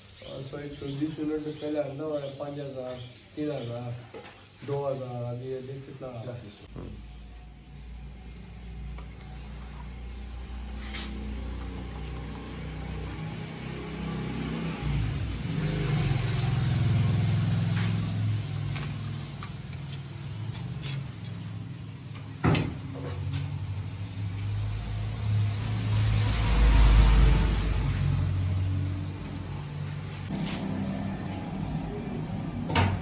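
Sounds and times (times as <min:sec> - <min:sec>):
vehicle engine humming: 0:07.7 - 0:33.0.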